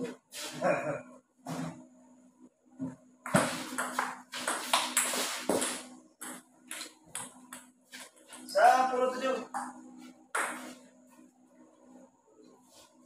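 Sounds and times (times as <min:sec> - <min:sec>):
table tennis ball hitting paddles: 0:03.2 - 0:07.7, 0:10.4 - 0:10.7.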